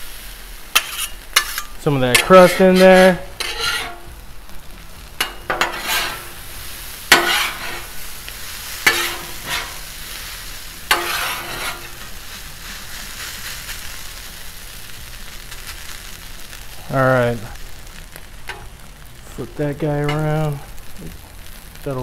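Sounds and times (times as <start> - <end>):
hash browns sizzling on griddle: 0.0 - 22.0
metal spatulas scraping griddle: 0.7 - 4.1, 5.2 - 6.4, 7.1 - 8.0, 8.7 - 10.0, 10.9 - 12.2.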